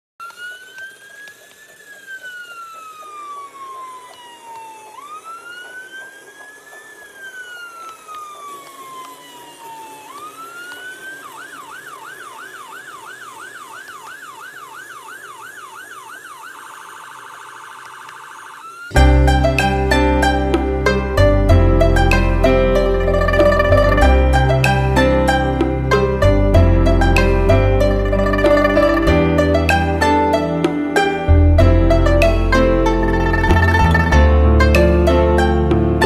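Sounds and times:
emergency vehicle siren: 0.2s - 36.0s.

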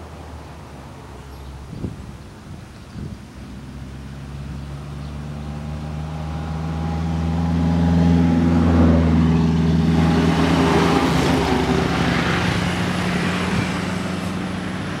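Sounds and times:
truck passing by: 3.3s - 15.0s.

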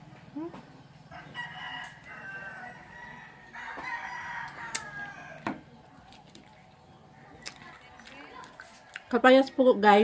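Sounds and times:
rooster crowing: 1.1s - 5.6s.

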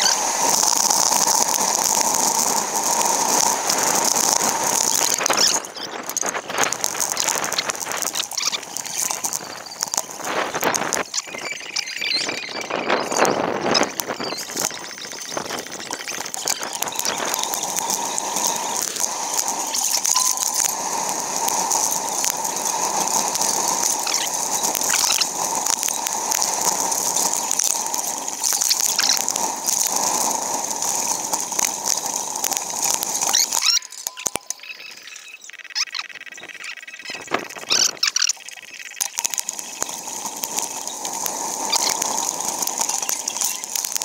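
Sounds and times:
bicycle clicks and rattles: 0.0s - 35.2s, 37.3s - 44.0s
wind and road noise rushing hiss: 0.0s - 35.2s, 39.2s - 44.0s.

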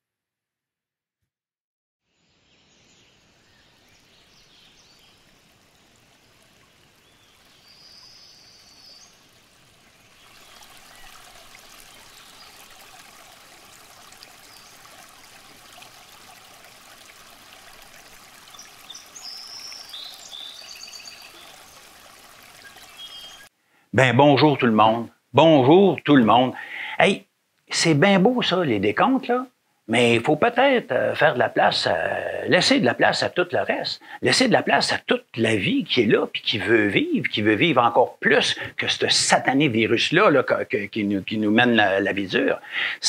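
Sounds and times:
brook water rushing: 3.4s - 23.5s, 29.9s - 43.0s
high bird chirps: 18.5s - 21.5s, 22.6s - 23.5s.

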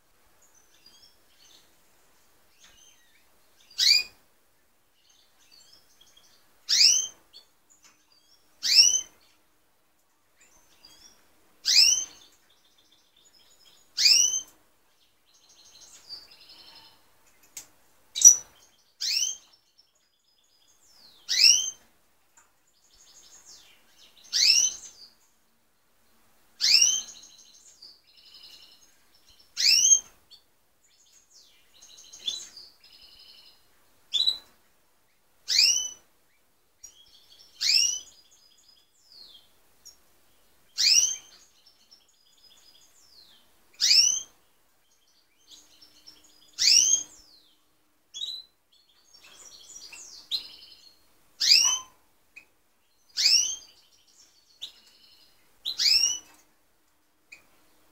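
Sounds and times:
birds twittering: 10.4s - 21.9s, 22.7s - 25.6s, 26.6s - 34.5s, 35.5s - 56.5s.

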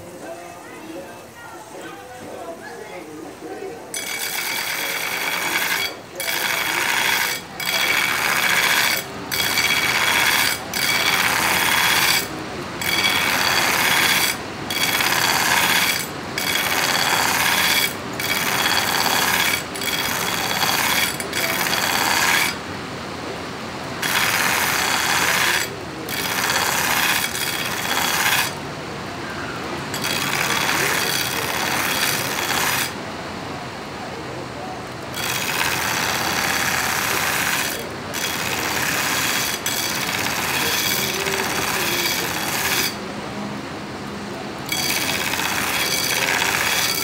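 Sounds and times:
belt grinder grinding steel blade: 4.0s - 22.6s, 24.0s - 28.6s, 29.9s - 33.0s, 35.1s - 43.0s, 44.7s - 47.0s.

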